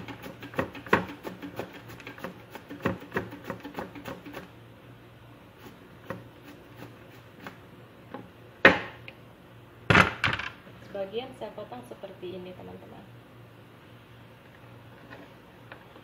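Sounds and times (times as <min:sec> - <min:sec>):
gourd rasping on mandoline slicer: 0:00.0 - 0:04.5, 0:05.5 - 0:07.6.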